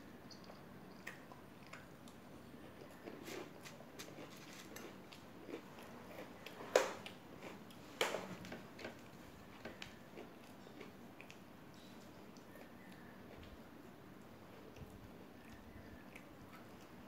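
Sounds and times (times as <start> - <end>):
crunchy snacks being chewed: 1.0 - 7.8.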